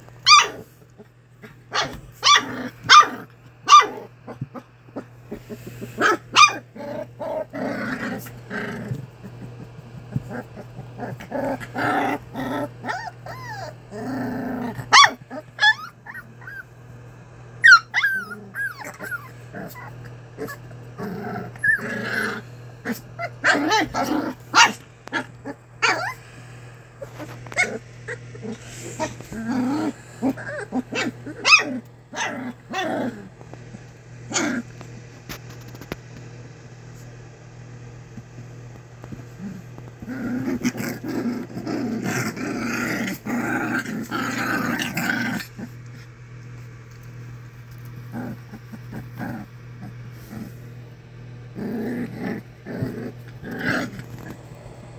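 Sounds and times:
puppies growling: 0.0 - 36.0, 38.7 - 54.9
puppies yipping and squealing: 12.8 - 13.8, 14.9 - 16.7, 17.6 - 20.6, 21.5 - 21.9, 23.2 - 26.2.

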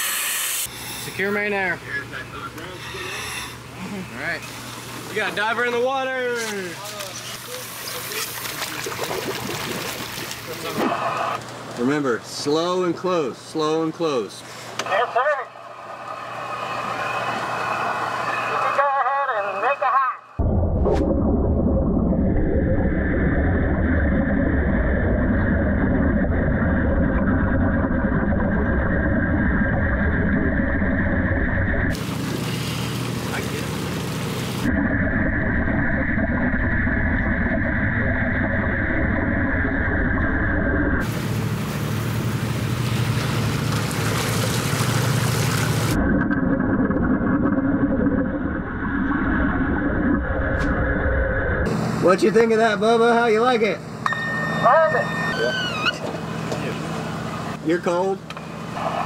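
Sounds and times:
underwater welding arc: 0.0 - 1.7
gas bubbling: 7.5 - 11.4, 20.4 - 51.7
low hum: 14.1 - 57.6
muffled underwater welding rumble: 20.4 - 44.2, 44.8 - 52.2.

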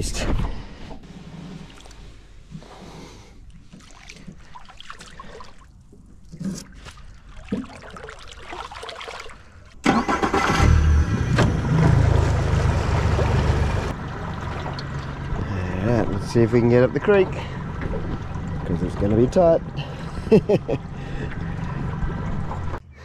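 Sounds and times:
outboard motor running: 10.6 - 22.8.

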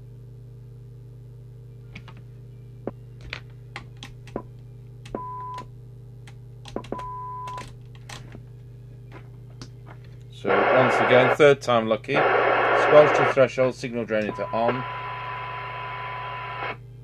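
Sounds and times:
low hum and whine: 0.0 - 17.0
radio test tone: 10.4 - 16.8.

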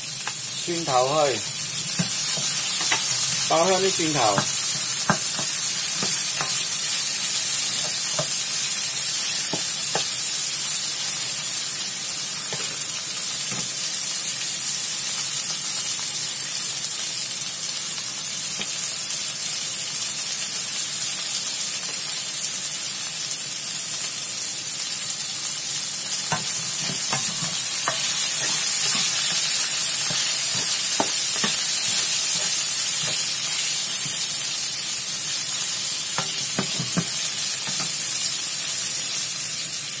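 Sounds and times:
food sizzling in hot oil: 0.0 - 40.0
spatula scraping a pan: 26.3 - 34.4.

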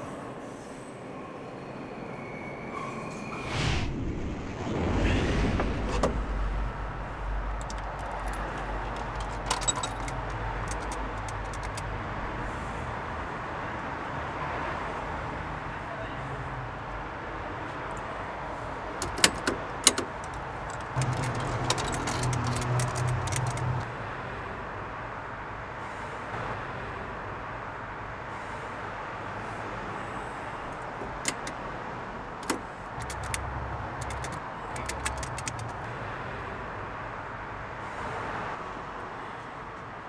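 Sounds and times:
vehicles rumbling past: 3.4 - 40.0
sharp clicks: 7.4 - 11.9, 19.0 - 23.9, 32.4 - 35.9.

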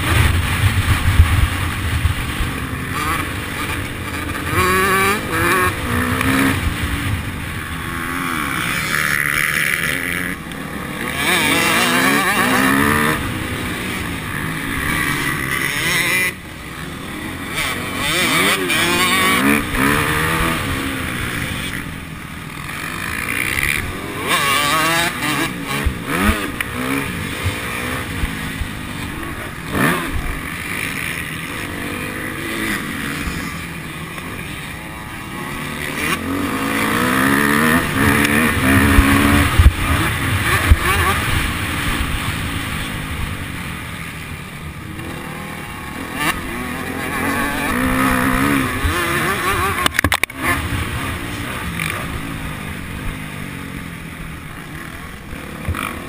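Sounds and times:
motocross bike engine revving: 0.0 - 56.0.

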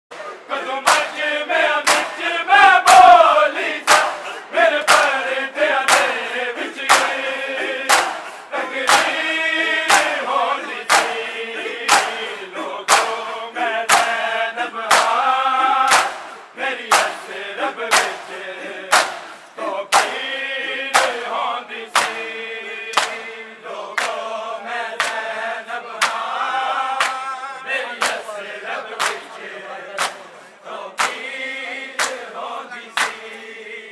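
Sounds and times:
men chanting in unison: 0.1 - 33.9
hands slapping chests: 0.8 - 13.2, 13.9 - 14.3, 14.9 - 15.3, 15.9 - 20.3, 20.9 - 22.3, 22.9 - 23.3, 24.0 - 24.2, 25.0 - 25.3, 26.0 - 26.4, 27.0 - 27.2, 28.0 - 28.3, 28.9 - 29.3, 30.0 - 30.3, 31.0 - 31.3, 32.0 - 32.4, 33.0 - 33.4.

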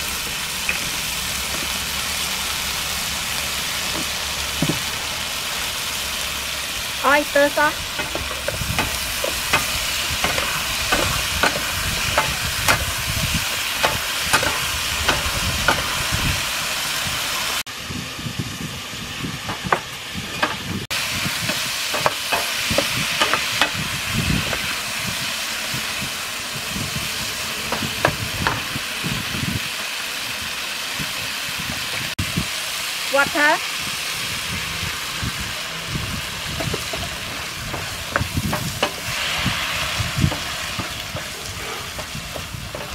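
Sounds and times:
food sizzling in a frying pan: 0.0 - 42.9
wooden spatula knocking on pan: 8.0 - 12.9, 36.6 - 39.1, 40.2 - 42.9.

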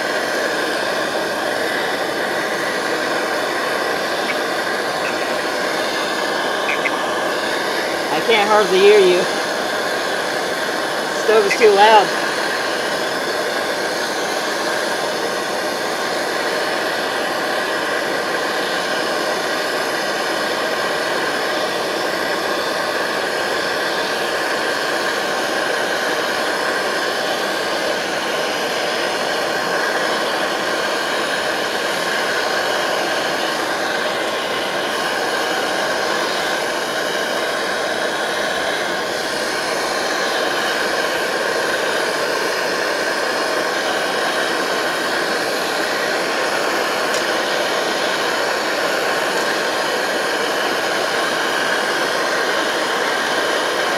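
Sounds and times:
stove burner roaring: 0.0 - 53.9.

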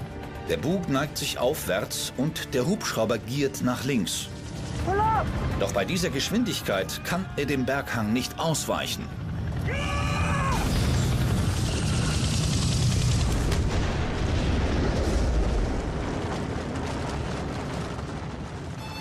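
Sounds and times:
debris crackling: 10.5 - 19.0
explosion boom: 10.6 - 19.0.

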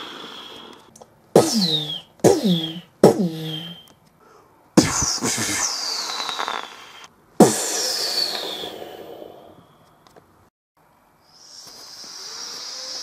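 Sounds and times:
explosion with falling whistle: 1.4 - 3.8, 7.8 - 9.0.

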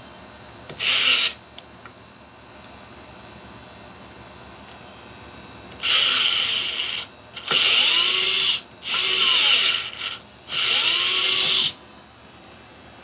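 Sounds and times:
cordless screwdriver motor whine: 0.7 - 1.4, 5.8 - 11.8.

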